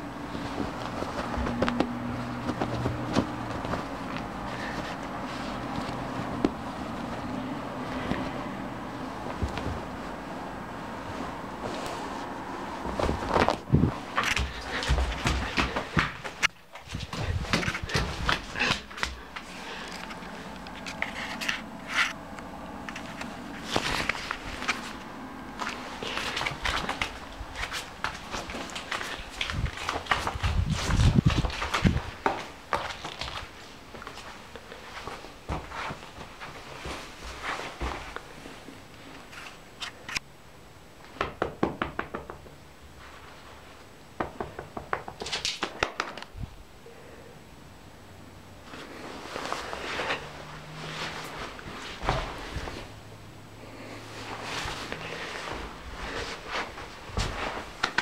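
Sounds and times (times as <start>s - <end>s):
footsteps on parquet floor: 0.0s - 10.2s, 11.2s - 38.4s, 49.5s - 53.0s, 54.2s - 58.0s
steady low hum: 0.0s - 41.0s
cat paws tapping on wooden floor: 0.3s - 7.3s, 12.8s - 25.0s, 44.2s - 46.3s.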